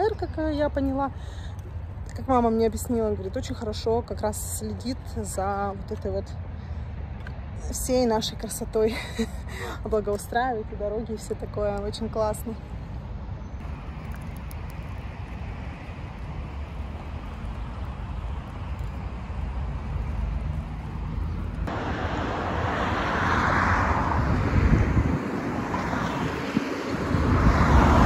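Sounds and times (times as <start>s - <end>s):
pram wheels rumbling on asphalt: 13.6s - 28.0s
wind rushing: 15.0s - 28.0s.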